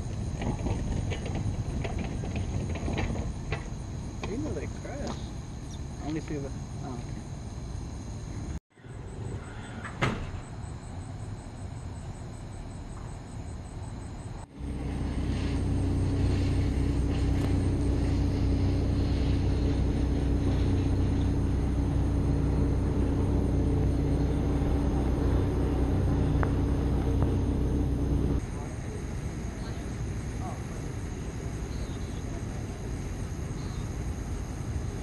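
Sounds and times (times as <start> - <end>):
vehicle engine idling: 14.5 - 35.0.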